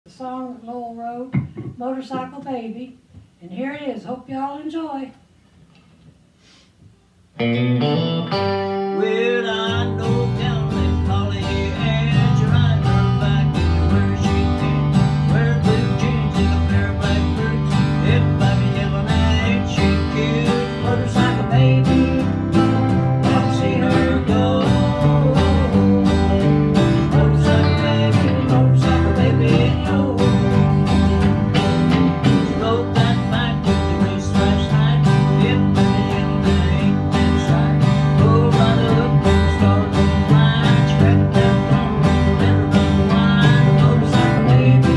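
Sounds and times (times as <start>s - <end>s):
country band playing: 7.4s - 44.9s.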